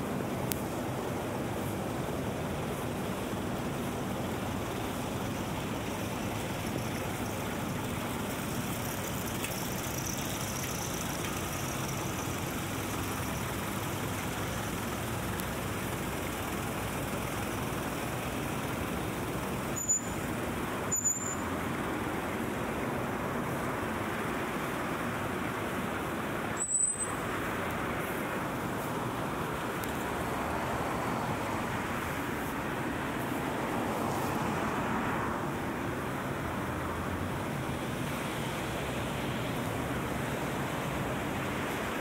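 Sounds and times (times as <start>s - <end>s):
city street traffic: 0.0s - 42.0s.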